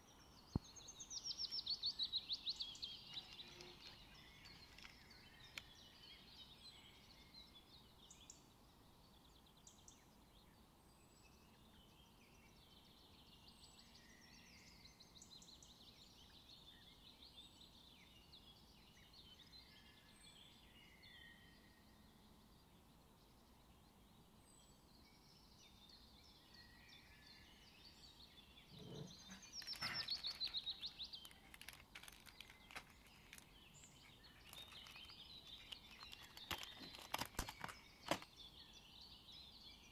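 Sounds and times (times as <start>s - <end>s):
faint bird chirping: 0.0s - 39.9s
clicks and rustles: 3.1s - 5.7s, 28.9s - 38.3s.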